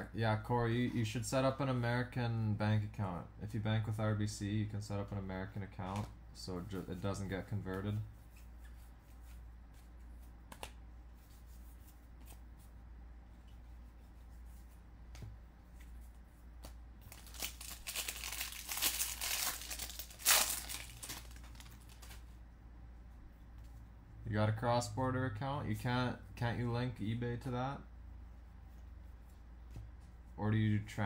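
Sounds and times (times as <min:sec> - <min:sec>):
wrapper tearing and crinkling: 0:17.0 - 0:22.2.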